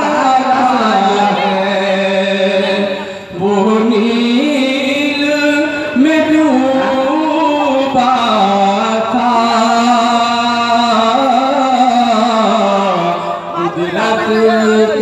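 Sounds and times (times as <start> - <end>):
man singing into microphone: 0.0 - 15.0.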